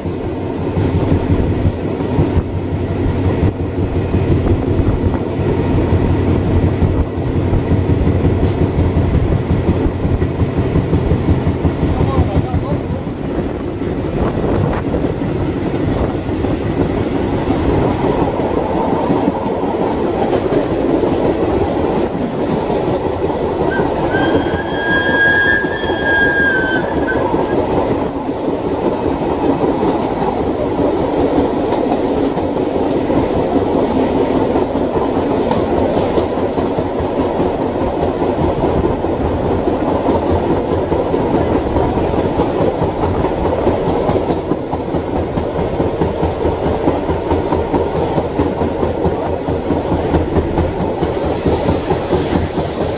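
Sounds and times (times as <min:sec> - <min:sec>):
train wheels clickety-clack: 0:00.0 - 0:52.9
high squeal: 0:23.7 - 0:27.6.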